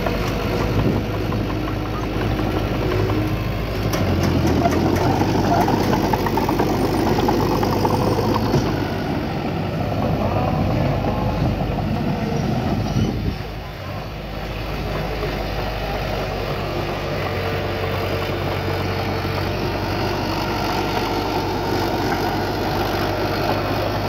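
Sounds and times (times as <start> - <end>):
heavy diesel engine running: 0.0 - 24.0.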